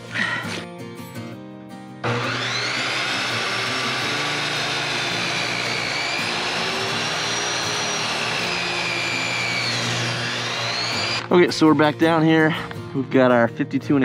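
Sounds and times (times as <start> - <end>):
miter saw cutting wood: 2.0 - 11.4.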